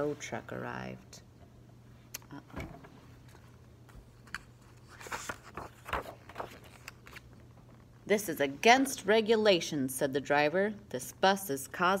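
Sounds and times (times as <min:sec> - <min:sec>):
faint steady hum: 0:00.0 - 0:12.0
book pages turning: 0:03.2 - 0:07.9
paper rustling: 0:03.3 - 0:07.4.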